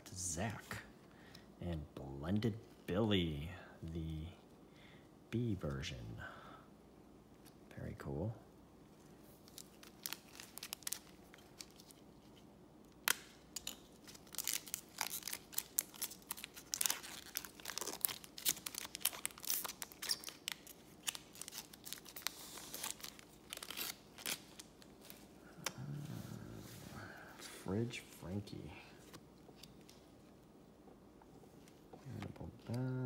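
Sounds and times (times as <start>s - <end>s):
foil wrapper tearing and crinkling: 9.4s - 12.0s, 13.9s - 24.8s.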